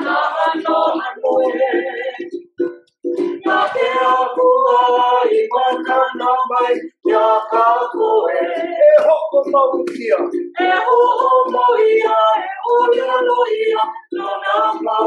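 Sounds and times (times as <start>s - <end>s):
group of men and women singing: 0.0s - 15.0s.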